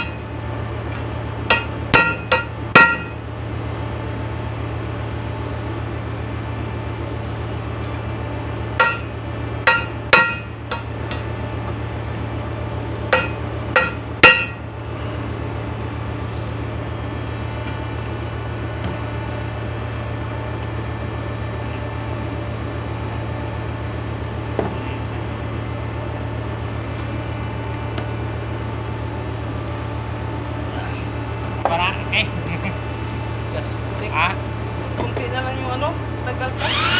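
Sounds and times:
steady low hum: 0:00.0 - 0:36.9
hammer ringing on steel: 0:01.5 - 0:03.2, 0:08.8 - 0:10.9, 0:13.1 - 0:14.6.

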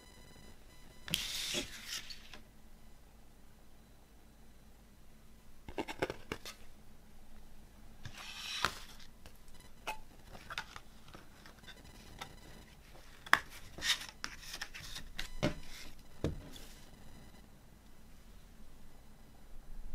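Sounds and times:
cardboard sliding and rubbing: 0:01.1 - 0:02.4, 0:08.1 - 0:09.1.

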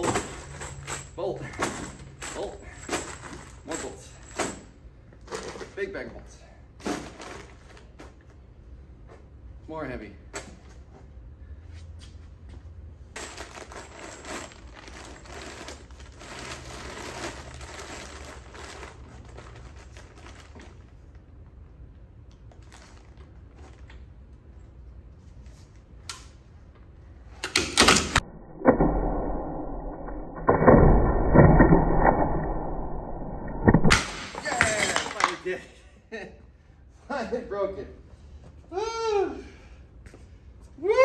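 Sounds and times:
plastic bag crinkling: 0:13.2 - 0:20.9.

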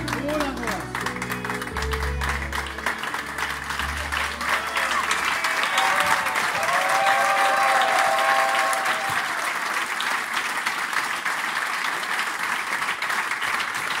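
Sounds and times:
waltz music held notes: 0:00.0 - 0:05.2
audience applauding: 0:00.0 - 0:14.0.

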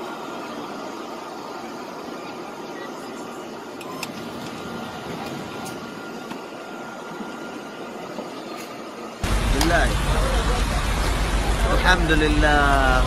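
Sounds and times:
heavy rain pouring: 0:09.2 - 0:13.0.

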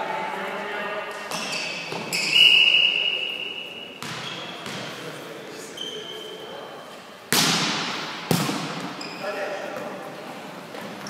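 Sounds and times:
referee's whistle blowing: 0:01.5 - 0:04.5.

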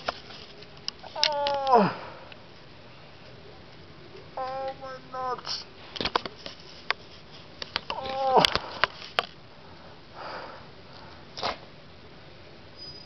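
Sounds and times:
short voice-like cry: 0:01.0 - 0:02.0, 0:07.9 - 0:08.6.

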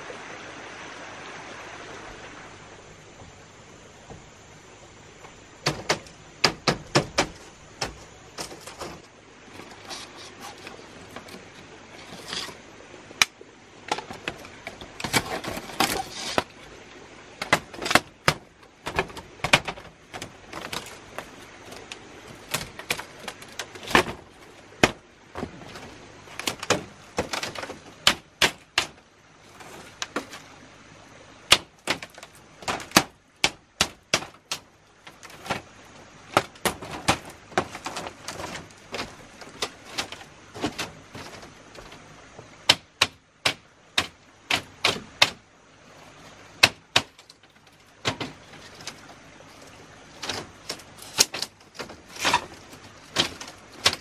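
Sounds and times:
tool knocks and cracks: 0:05.6 - 0:10.0, 0:13.9 - 0:16.6, 0:17.4 - 0:29.0, 0:31.5 - 0:35.7, 0:36.3 - 0:42.0, 0:42.7 - 0:45.4, 0:46.6 - 0:49.0, 0:50.2 - 0:54.0.

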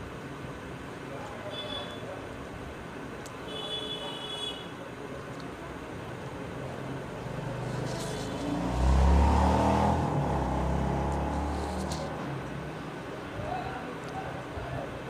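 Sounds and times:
vehicle engine passing: 0:06.6 - 0:13.0.

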